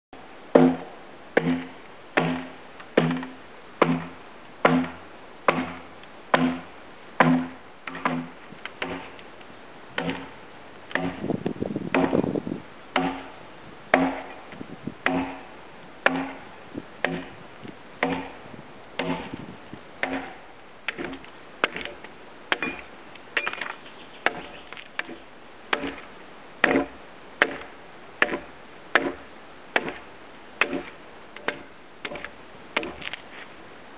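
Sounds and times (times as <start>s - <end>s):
axe chopping into timber: 0.6s - 9.1s, 10.0s - 10.3s, 10.9s - 11.3s, 11.9s - 12.3s, 13.0s - 13.3s, 13.9s - 14.3s, 15.0s - 15.4s, 16.0s - 16.4s, 17.0s - 17.4s, 18.0s - 18.4s, 19.0s - 19.4s, 20.0s - 23.6s, 24.2s - 29.2s, 29.8s - 30.0s, 30.6s - 33.2s.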